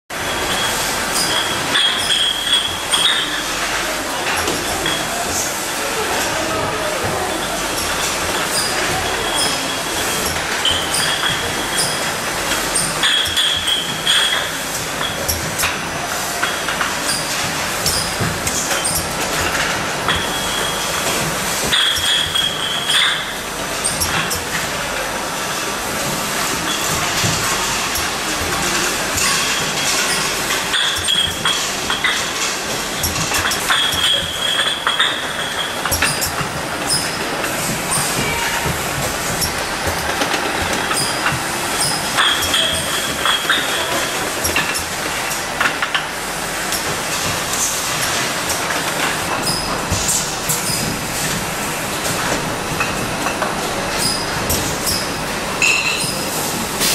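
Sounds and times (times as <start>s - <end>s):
filling machine running: 0.1s - 56.9s
glass jars clinking: 1.2s - 3.4s, 33.0s - 37.2s, 40.8s - 44.1s, 55.6s - 56.2s.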